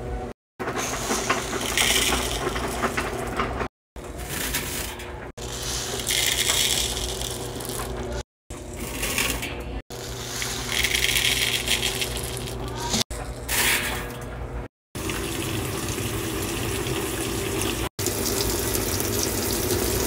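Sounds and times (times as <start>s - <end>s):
beads pouring into plastic cup: 5.5s - 7.8s, 10.0s - 12.7s.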